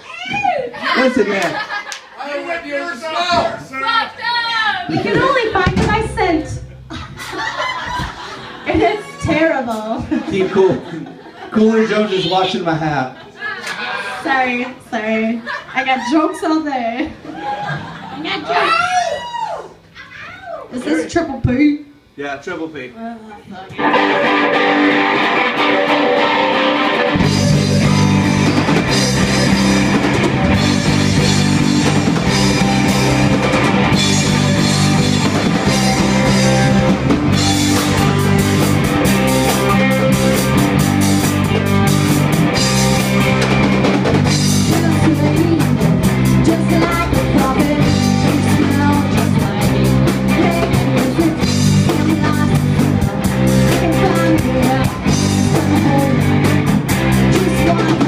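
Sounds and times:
rock band playing: 4.6s - 16.4s, 23.8s - 58.0s
electric guitar: 23.7s - 58.0s.

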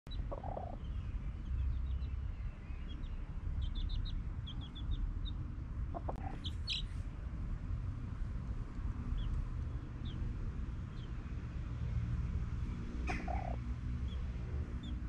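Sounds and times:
chicken clucking: 0.3s - 0.8s, 5.9s - 6.8s.

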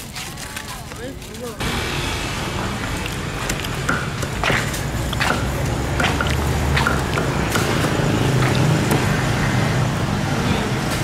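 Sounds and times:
low rumble of street traffic: 0.0s - 11.0s
cleaver chopping on wooden block: 3.8s - 9.1s.

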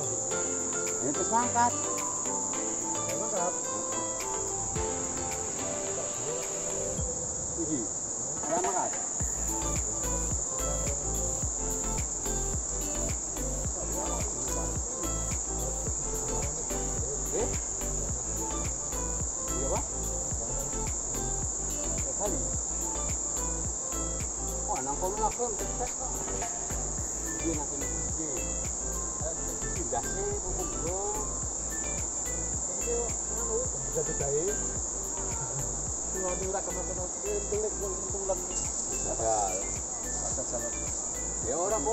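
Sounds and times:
insects droning: 0.0s - 41.9s.

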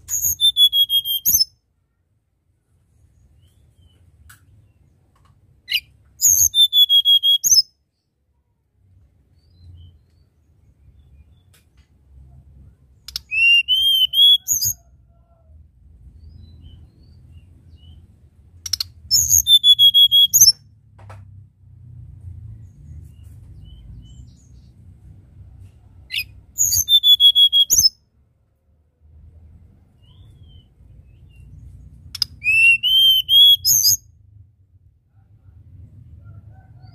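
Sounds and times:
bird singing high whistled notes: 0.0s - 1.6s, 5.7s - 7.8s, 13.0s - 14.8s, 18.7s - 20.6s, 26.1s - 28.0s, 32.2s - 34.1s.

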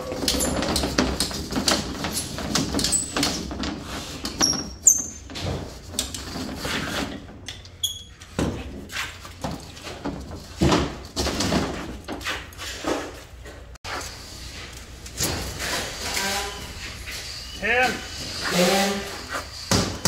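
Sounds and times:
short high squeaks: 15.7s - 20.0s.

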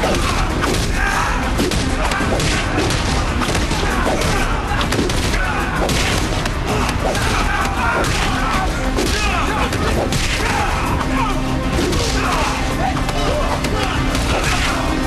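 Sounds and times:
punches and thuds: 0.0s - 10.7s.

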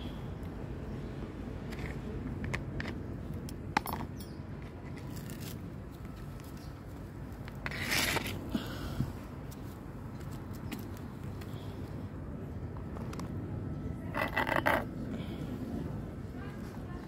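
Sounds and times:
low outdoor hum: 0.0s - 17.0s.

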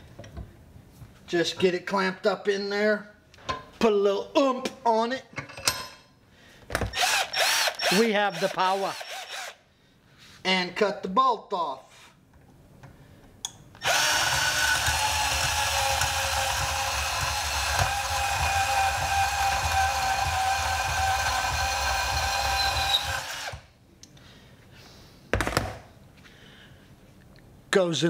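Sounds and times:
band saw cutting metal: 13.8s - 23.6s.

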